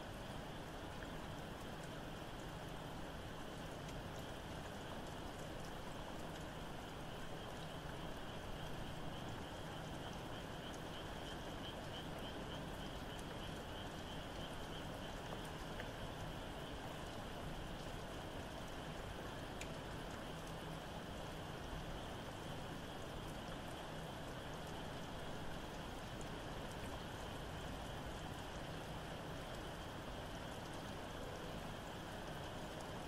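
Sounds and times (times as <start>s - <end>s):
steady rain: 0.0s - 33.0s
distant frog chorus trilling: 7.2s - 19.4s.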